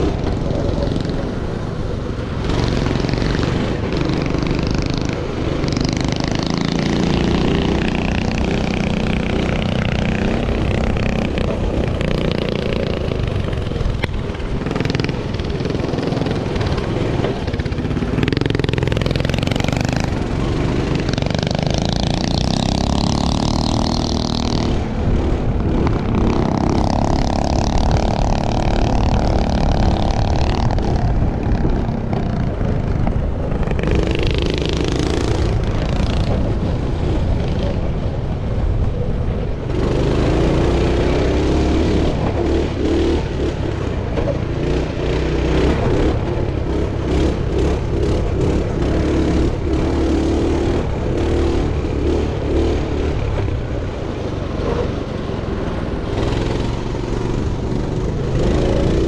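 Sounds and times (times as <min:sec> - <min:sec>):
pit bike engine revving: 0:02.3 - 0:37.9.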